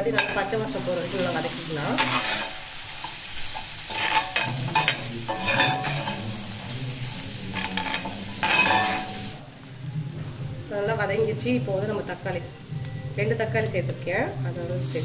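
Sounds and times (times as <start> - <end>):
spoon scraping against pan: 0.0 - 9.4
spices sizzling in hot oil: 0.0 - 15.0.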